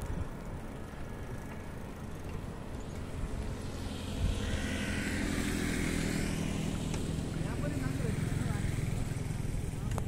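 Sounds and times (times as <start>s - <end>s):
motorcycle engine approaching: 0.0s - 10.0s
road noise: 0.0s - 10.0s
wind on microphone: 3.1s - 6.7s.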